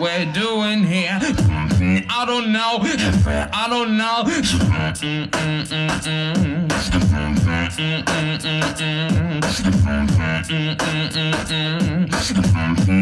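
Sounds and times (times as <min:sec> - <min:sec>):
low vocal bass line: 0:00.8 - 0:13.0
beatbox vocal drum hits: 0:01.2 - 0:02.1, 0:02.9 - 0:03.6, 0:04.3 - 0:13.0.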